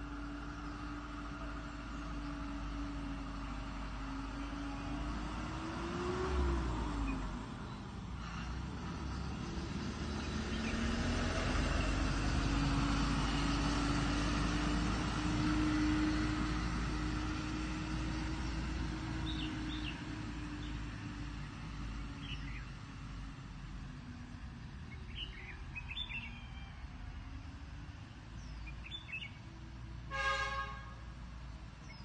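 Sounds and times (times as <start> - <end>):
distant engine drone: 0.0 - 32.0.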